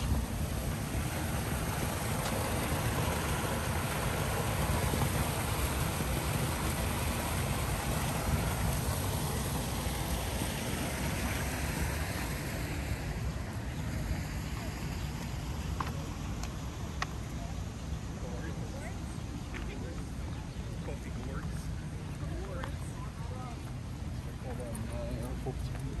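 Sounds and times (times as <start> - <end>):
steady rushing noise: 0.0 - 16.8.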